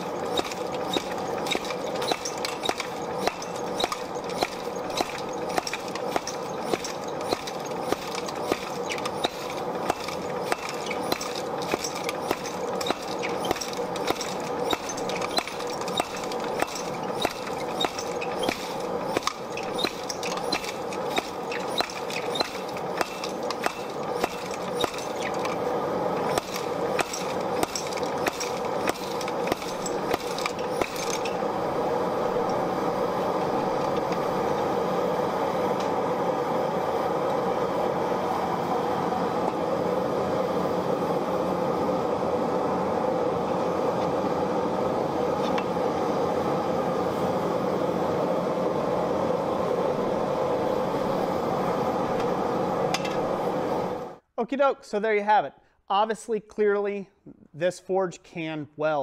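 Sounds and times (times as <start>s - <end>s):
gas forge roaring: 0.0s - 54.2s
hammer striking steel on anvil: 0.3s - 25.5s.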